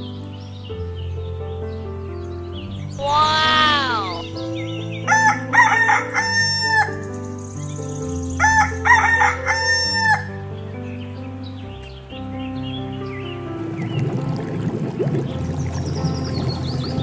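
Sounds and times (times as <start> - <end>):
background music: 0.0 - 17.0
rooster crowing: 5.1 - 6.9.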